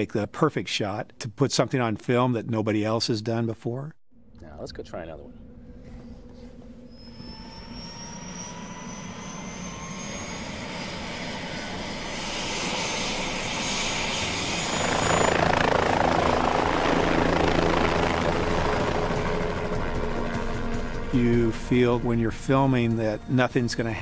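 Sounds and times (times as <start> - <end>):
helicopter turbine whine: 4.2 - 24.0
helicopter rotor noise: 5.0 - 24.0.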